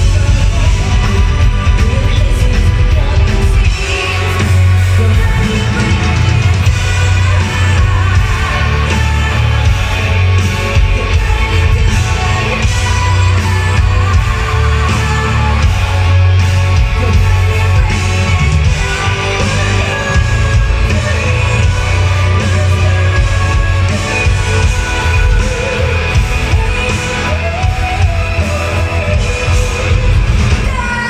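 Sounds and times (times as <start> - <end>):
metal band playing live: 0.0 - 31.0.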